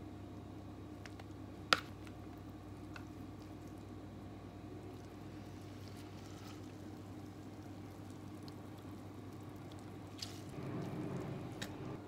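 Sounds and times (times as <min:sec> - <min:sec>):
steady low hum: 0:00.0 - 0:12.0
wet vegetables squished by hand: 0:04.7 - 0:12.0.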